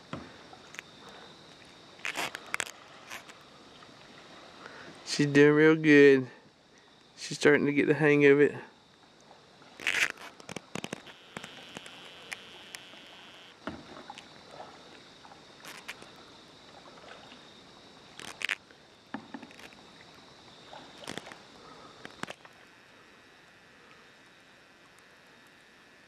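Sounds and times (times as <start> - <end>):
paddle splashing water: 0.0 - 5.3, 13.6 - 23.0.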